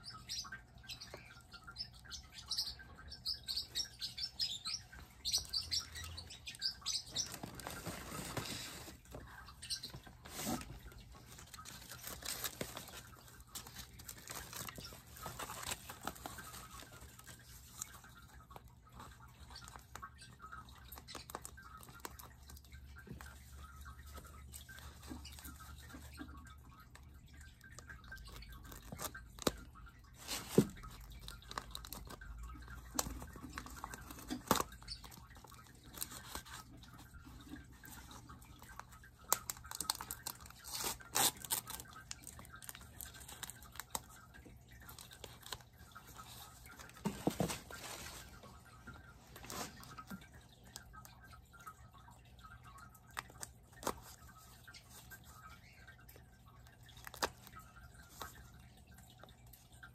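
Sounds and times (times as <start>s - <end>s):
paper wrapping crinkling: 7.1s - 20.0s, 32.9s - 44.2s, 44.8s - 50.3s.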